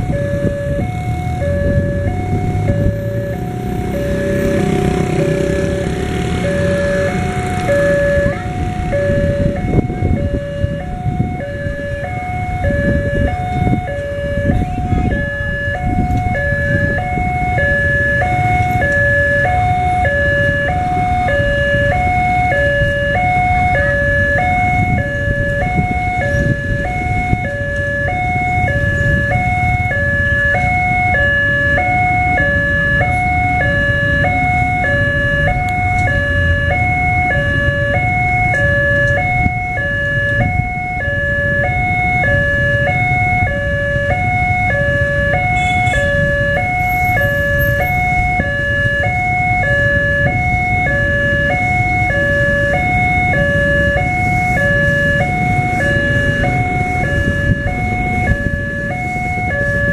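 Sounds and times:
level-crossing two-tone alarm: 0:00.0 - 0:59.9
motorcycle engines idling: 0:01.4 - 0:11.1.

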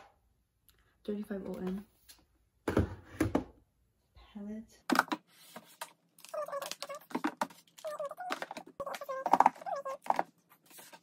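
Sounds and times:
plastic palettes clicking and clattering: 0:04.9 - 0:11.0.

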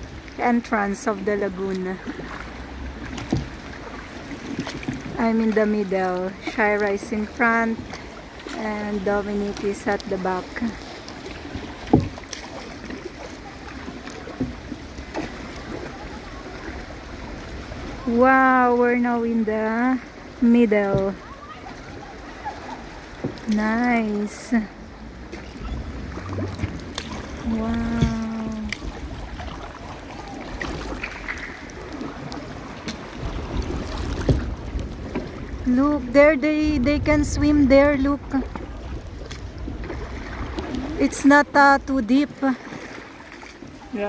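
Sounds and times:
wind rumble on microphone: 0:00.0 - 0:42.6
paddle strokes splashing: 0:00.0 - 0:44.0
water sloshing against hull: 0:00.0 - 0:44.0.

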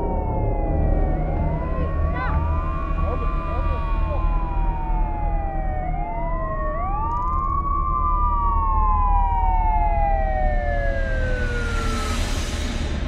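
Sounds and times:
low rumble: 0:00.0 - 0:07.1
police sirens wailing: 0:00.0 - 0:12.5.

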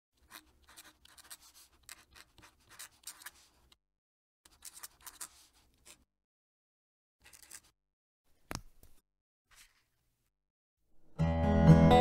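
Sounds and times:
fountain pen scratching on paper: 0:00.2 - 0:03.8, 0:04.5 - 0:06.1, 0:07.2 - 0:07.7.

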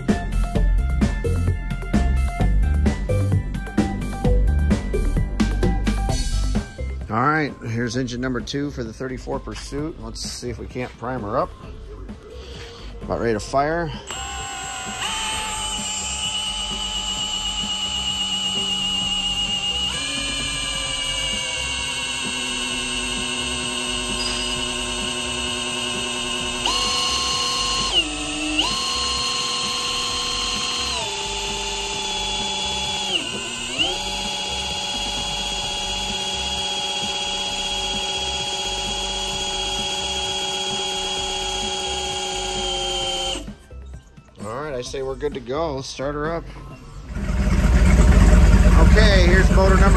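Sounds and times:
electric drill whining: 0:13.9 - 0:43.8, 0:47.0 - 0:49.9.

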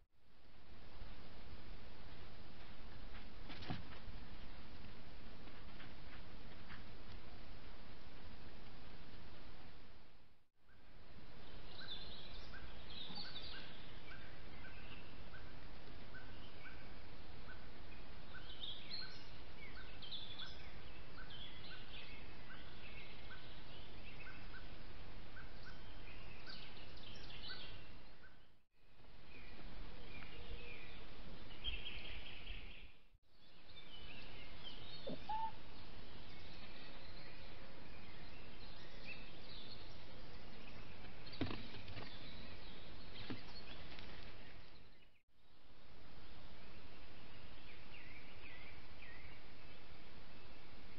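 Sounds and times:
birds singing: 0:10.7 - 0:28.6, 0:29.3 - 0:45.6, 0:46.9 - 0:50.9
bird repeating short high note: 0:35.1 - 0:35.6.

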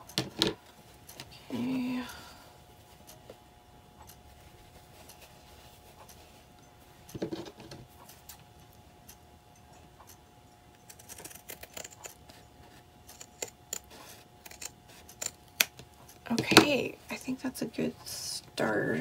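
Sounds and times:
scissors snipping fabric: 0:10.8 - 0:12.4, 0:13.1 - 0:15.8.

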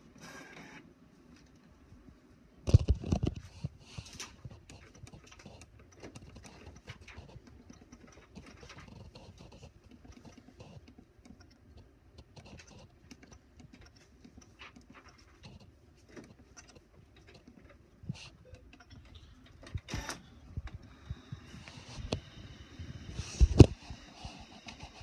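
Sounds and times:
faint clicking and rustling: 0:00.6 - 0:22.3.

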